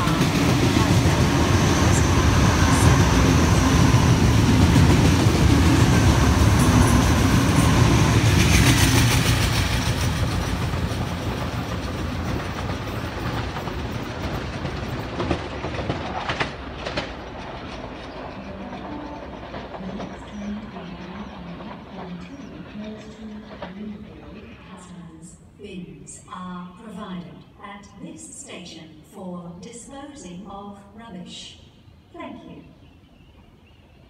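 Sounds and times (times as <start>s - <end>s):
train wheel clatter: 0.0s - 24.9s
electric train rumbling past: 0.0s - 26.3s.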